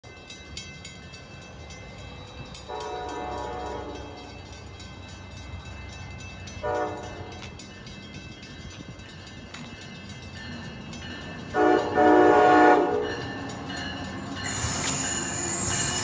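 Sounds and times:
distant train horn: 2.7 - 4.4, 6.6 - 7.5, 11.5 - 13.2.

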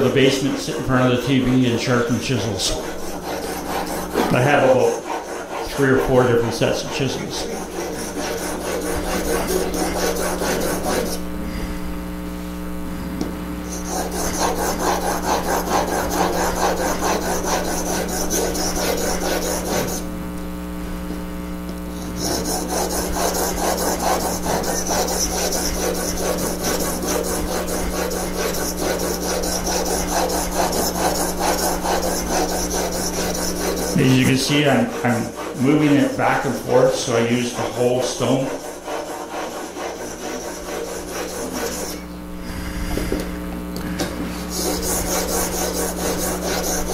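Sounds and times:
chisel scraping on sharpening stone: 22.0 - 34.4, 38.6 - 42.0.

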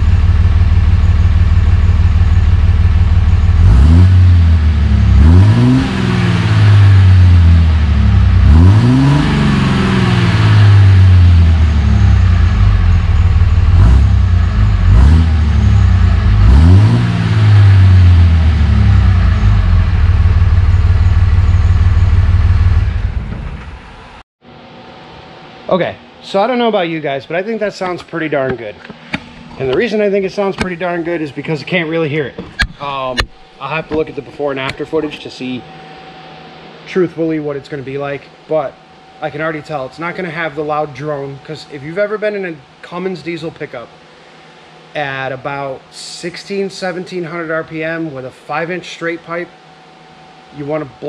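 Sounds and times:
diesel engine idling and revving: 0.0 - 24.2.

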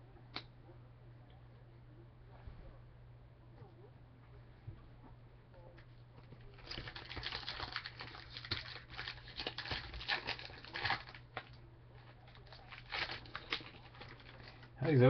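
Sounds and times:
low steady hum: 0.0 - 15.0
foil pack crinkling: 6.5 - 15.0.

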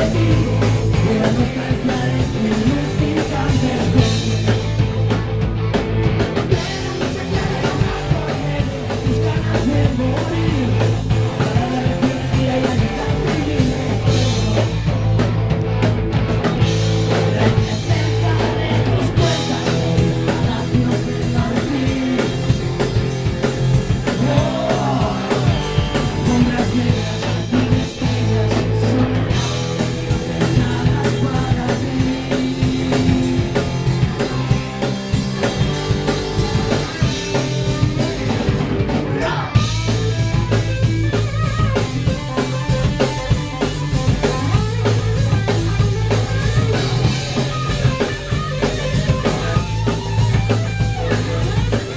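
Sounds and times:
person singing: 0.0 - 4.8, 6.5 - 15.0, 17.1 - 23.0, 24.0 - 33.7, 39.1 - 39.6
bass guitar: 0.0 - 51.9
drum kit: 0.0 - 51.9
electric guitars: 0.0 - 51.9.

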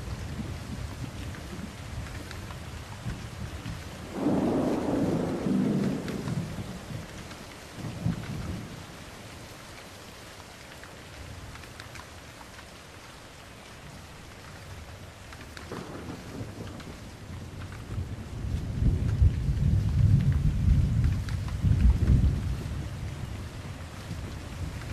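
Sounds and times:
steady rain: 0.0 - 24.9
rolling thunder: 4.1 - 7.1, 15.6 - 23.0.

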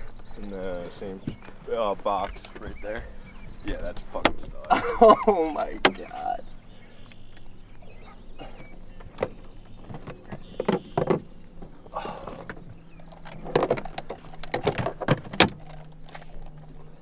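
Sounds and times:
knocks and rattles of gear: 7.4 - 17.0.

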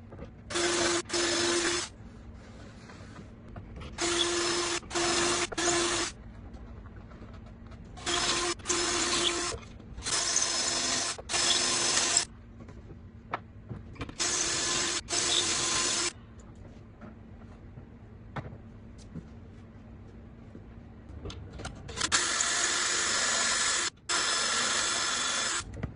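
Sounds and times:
cordless drill drilling into board: 0.5 - 1.9, 4.0 - 6.1, 8.0 - 12.3, 14.2 - 16.1, 22.1 - 25.6.

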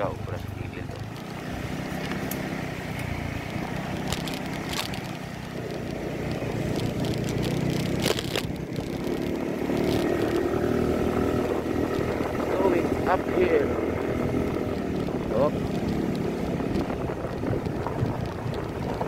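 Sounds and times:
small motorcycle engine: 0.4 - 19.0
knocks and rattles from bumps: 3.5 - 10.6.

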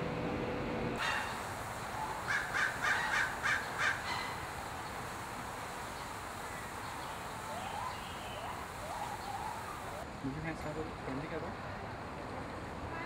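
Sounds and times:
outdoor background noise: 0.0 - 13.0
harsh animal calls: 1.0 - 4.8.

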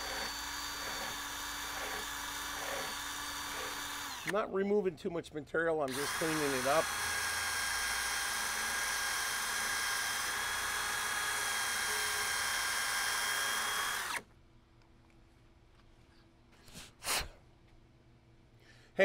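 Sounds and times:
electric drill whining: 0.0 - 4.4, 5.9 - 14.3.

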